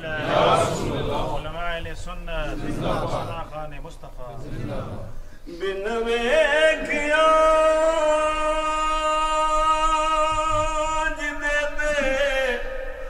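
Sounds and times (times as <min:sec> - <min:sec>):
man singing unaccompanied: 0:05.4 - 0:13.0.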